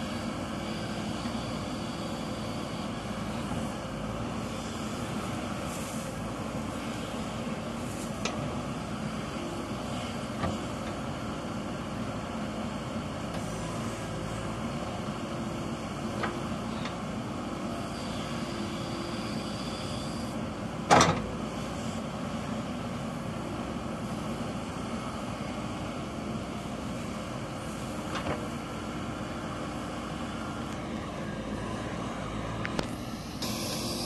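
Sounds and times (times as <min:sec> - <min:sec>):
backhoe scooping soil: 0:00.0 - 0:22.6
diesel engine running: 0:00.0 - 0:34.0.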